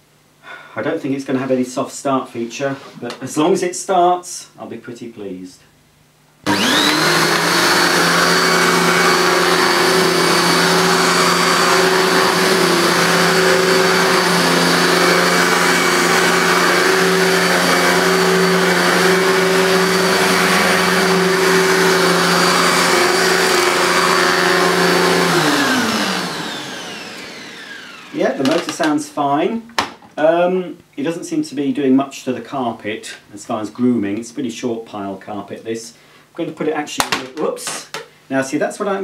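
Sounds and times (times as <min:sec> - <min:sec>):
vacuum cleaner motor humming: 0:06.4 - 0:28.8.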